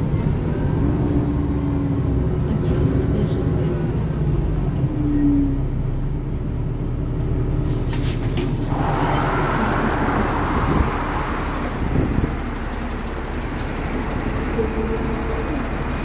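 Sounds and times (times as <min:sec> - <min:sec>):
bus rumbling: 0:00.0 - 0:16.0
hissing rush: 0:08.3 - 0:12.4.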